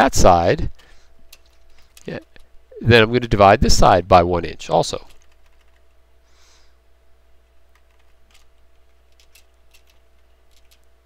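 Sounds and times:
low steady hum: 0:00.0 - 0:11.0
faint keyboard keystrokes: 0:01.3 - 0:02.5, 0:05.0 - 0:05.9, 0:07.7 - 0:10.9.

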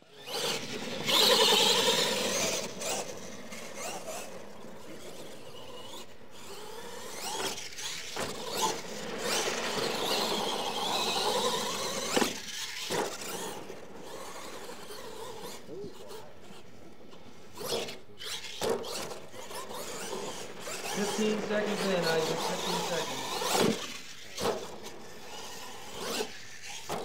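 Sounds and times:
toy truck motor and gears whining: 0:00.0 - 0:27.0.

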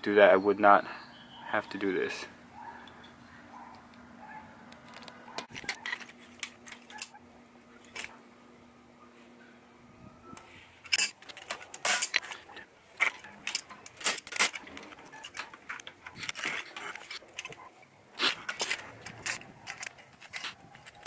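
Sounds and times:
pliers scraping metal latch: 0:10.9 - 0:12.4, 0:13.0 - 0:17.6, 0:18.2 - 0:21.0.

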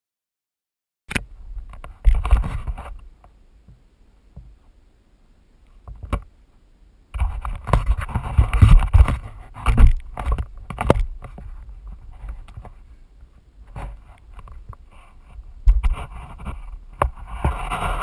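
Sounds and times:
board scraping over sand: 0:07.2 - 0:12.9, 0:13.6 - 0:18.0.

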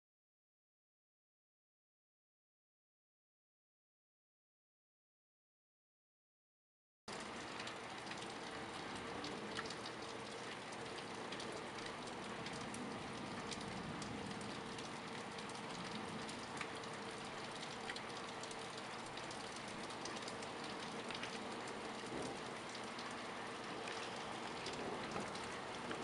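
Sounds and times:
raindrops ticking on surfaces: 0:07.1 - 0:26.0
steady rain hiss: 0:07.1 - 0:26.0.

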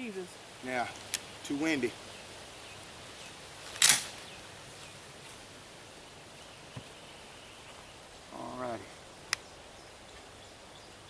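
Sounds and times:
shotgun shot: 0:03.8 - 0:04.1.

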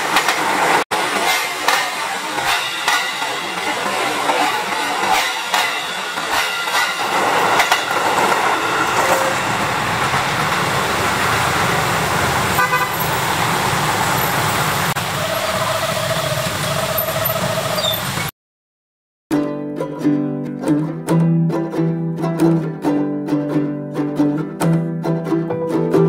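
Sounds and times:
electric train passing: 0:00.0 - 0:18.3
vehicle horn honking: 0:12.6 - 0:13.3.

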